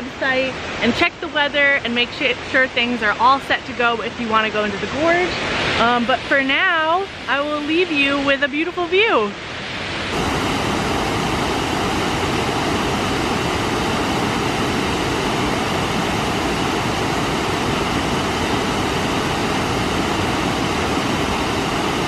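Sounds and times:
waterfall rushing: 0:00.0 - 0:22.0.

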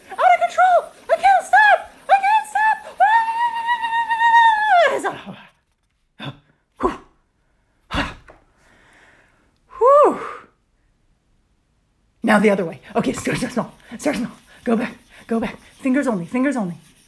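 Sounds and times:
woman squealing: 0:02.1 - 0:05.3.

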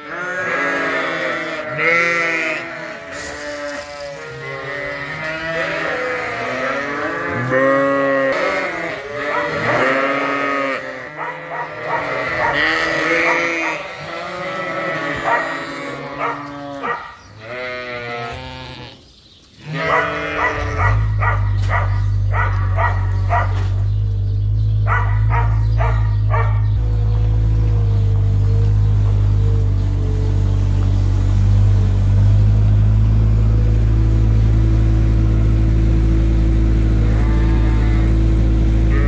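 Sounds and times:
sheep bleating: 0:00.0 - 0:19.0, 0:19.6 - 0:23.5, 0:36.9 - 0:39.0
loader engine rumble: 0:19.8 - 0:39.0.

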